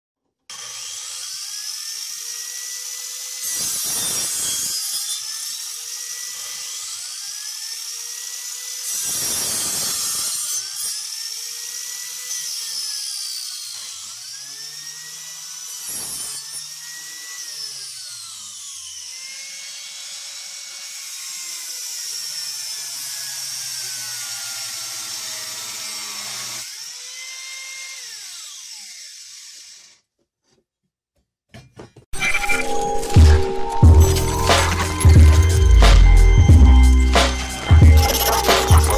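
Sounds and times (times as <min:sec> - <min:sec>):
grinder blade cutting wood: 0:00.5 - 0:30.1, 0:32.1 - 0:38.9
angle grinder motor whine: 0:32.2 - 0:38.9.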